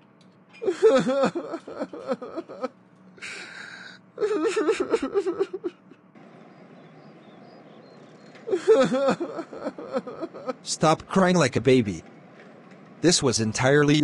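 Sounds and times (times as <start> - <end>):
faint outdoor hum: 0.0 - 14.0
cartoon character sobbing: 0.6 - 5.8, 8.5 - 10.6
breathy gasp: 3.2 - 4.0.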